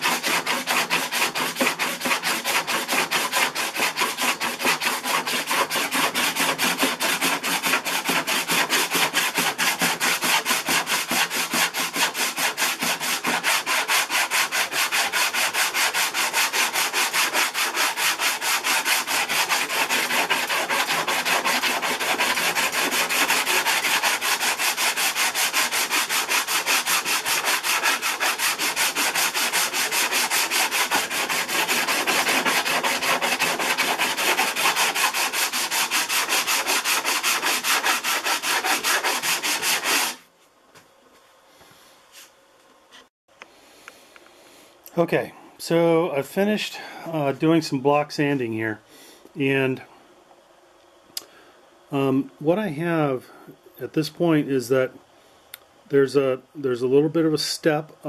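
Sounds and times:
sanding block rubbing filler: 0:00.0 - 0:40.2.

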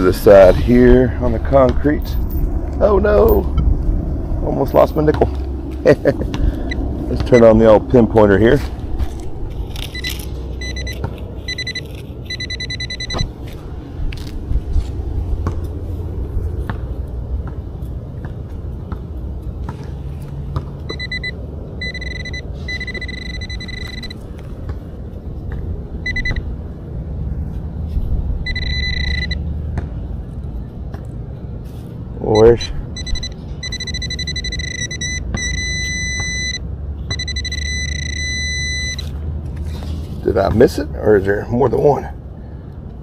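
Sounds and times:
steady low rumble: 0:00.0 - 0:43.0
pinpointer beeping: 0:06.6 - 0:07.6, 0:09.8 - 0:13.3, 0:20.9 - 0:24.2, 0:26.0 - 0:26.5, 0:28.4 - 0:29.4, 0:32.3 - 0:39.1.

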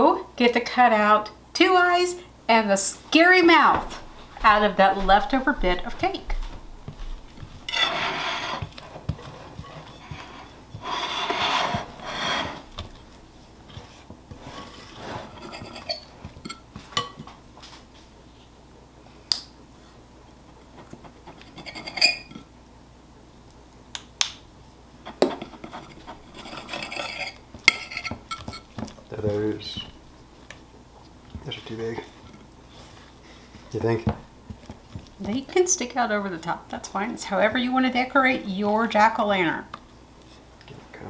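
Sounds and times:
knife cutting against plate: 0:07.6 - 0:13.0
spatula scraping glass bowl: 0:07.6 - 0:13.0, 0:13.7 - 0:16.6, 0:21.3 - 0:22.4, 0:25.1 - 0:28.7.

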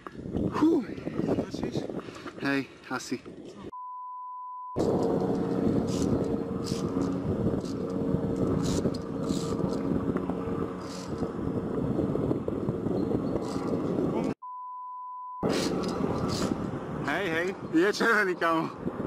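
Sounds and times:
wind buffeting microphone: 0:00.0 - 0:03.7, 0:04.8 - 0:14.4, 0:15.4 - 0:19.0
steady high beep: 0:03.7 - 0:04.8, 0:14.4 - 0:15.4.

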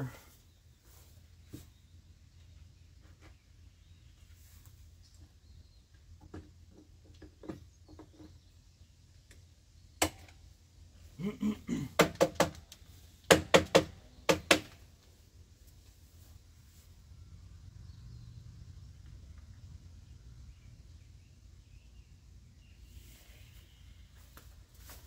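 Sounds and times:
wooden knocks and clacks: 0:06.2 - 0:08.5.

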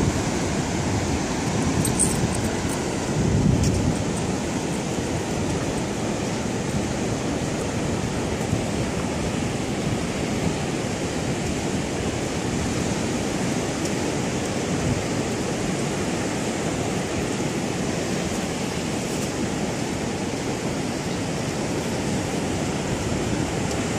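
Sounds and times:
ocean surf breaking: 0:00.0 - 0:23.9
wind: 0:00.0 - 0:23.9.

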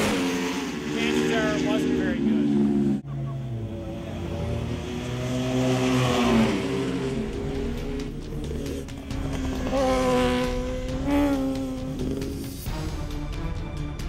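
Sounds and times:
racing motorcycle engine passing: 0:00.0 - 0:12.7
music: 0:07.0 - 0:14.0.

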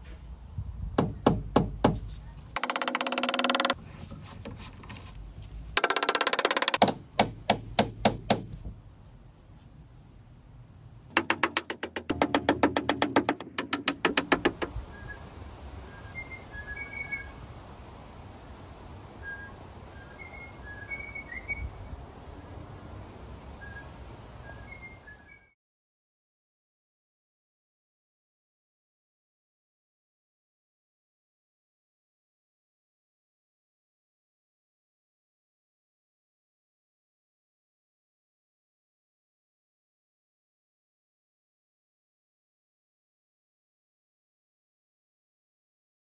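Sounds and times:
hammer driving nails into plywood: 0:01.0 - 0:03.8, 0:05.8 - 0:08.8, 0:11.1 - 0:14.7
ringing tone: 0:05.8 - 0:08.8.

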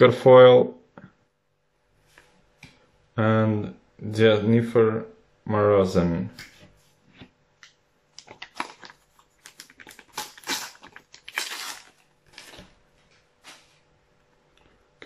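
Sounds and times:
wrapper tearing and crinkling: 0:08.2 - 0:12.8.

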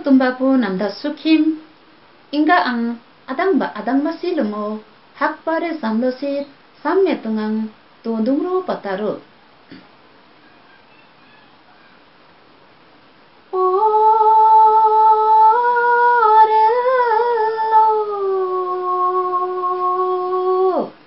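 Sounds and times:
woman singing unaccompanied: 0:00.0 - 0:01.6, 0:02.3 - 0:09.2, 0:13.5 - 0:21.0.

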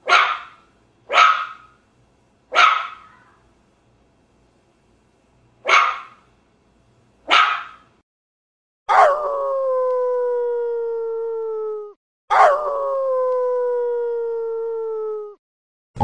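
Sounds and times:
dog barking: 0:00.0 - 0:01.8, 0:02.5 - 0:03.4, 0:05.6 - 0:06.2, 0:07.3 - 0:07.9
dog howling: 0:08.9 - 0:15.4.

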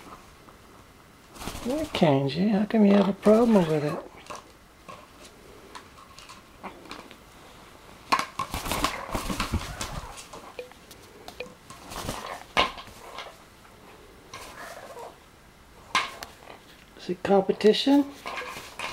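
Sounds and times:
parrot wing flaps and rustling: 0:01.2 - 0:02.2, 0:02.9 - 0:07.1, 0:08.1 - 0:13.5, 0:14.3 - 0:15.2, 0:18.0 - 0:18.9.

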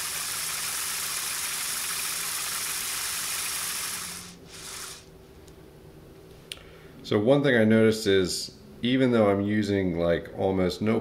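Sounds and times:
electric motor hiss: 0:00.0 - 0:05.1.

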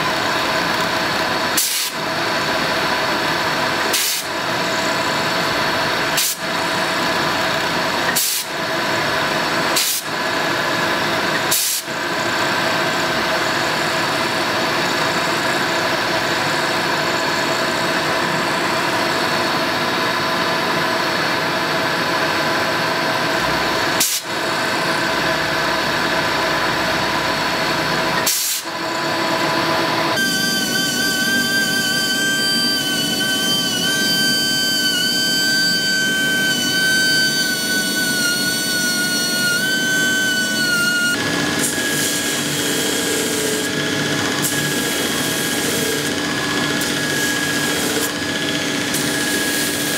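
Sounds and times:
die grinder high whine: 0:22.4 - 0:49.9
milling machine cutting steel: 0:27.4 - 0:49.9.

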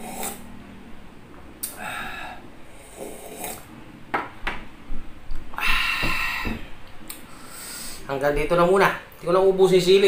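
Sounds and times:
man breathing out hard: 0:01.7 - 0:02.5, 0:05.5 - 0:06.7.

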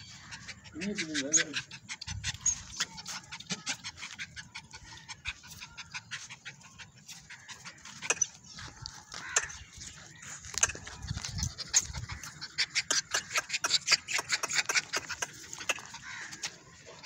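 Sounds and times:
puppy panting: 0:00.0 - 0:17.0
scuffs and clicks on dirt: 0:02.4 - 0:12.4, 0:14.0 - 0:17.0.

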